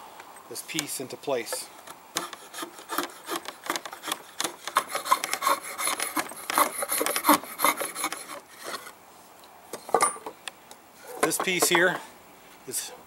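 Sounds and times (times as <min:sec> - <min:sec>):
drawknife scraping wood: 0:01.5 - 0:08.9.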